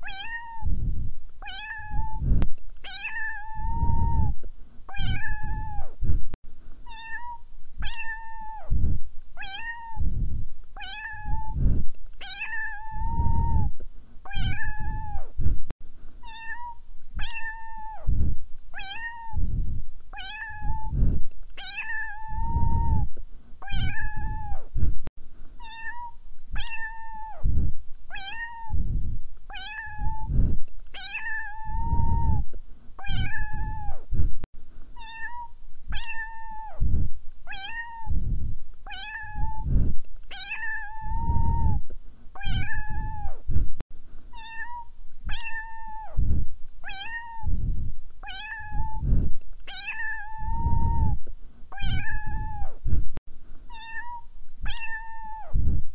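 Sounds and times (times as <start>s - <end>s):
cat meowing: 0.0s - 0.7s, 1.4s - 6.0s, 6.9s - 8.7s, 9.4s - 10.0s, 10.8s - 11.6s, 12.2s - 13.7s, 14.3s - 15.3s, 16.2s - 18.1s, 18.8s - 19.4s, 20.2s - 21.0s, 21.6s - 24.6s, 25.6s - 27.5s, 28.1s - 28.8s, 29.5s - 30.3s, 31.0s - 32.4s, 33.0s - 34.0s, 35.0s - 36.8s, 37.5s - 38.1s, 38.9s - 39.7s, 40.3s - 41.8s, 42.4s - 43.4s, 44.3s - 46.2s, 46.8s - 47.5s, 48.2s - 49.0s, 49.7s - 52.8s, 53.7s - 55.6s.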